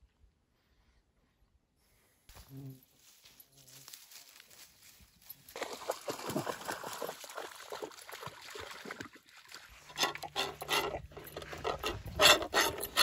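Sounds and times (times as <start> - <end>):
rustle of wet grass: 2.3 - 8.6.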